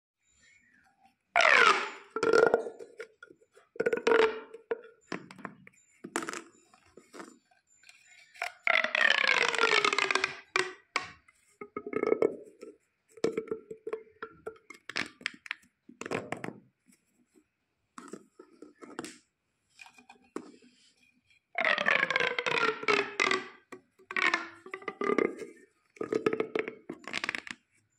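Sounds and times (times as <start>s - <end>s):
plastic pop tubes popping: 1.4s - 6.5s, 8.4s - 16.6s, 21.6s - 27.6s.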